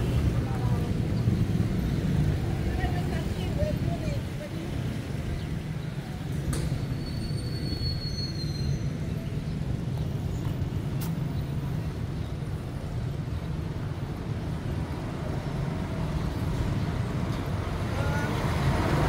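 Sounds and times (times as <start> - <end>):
road noise: 0.0 - 19.0
vehicle engine rumble: 0.0 - 19.0
faint high squeal: 6.8 - 9.3.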